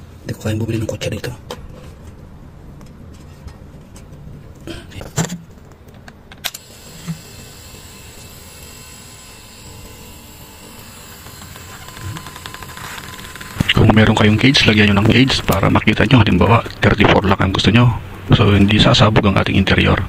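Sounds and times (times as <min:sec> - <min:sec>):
compressor air pump humming: 0:06.5 - 0:16.9.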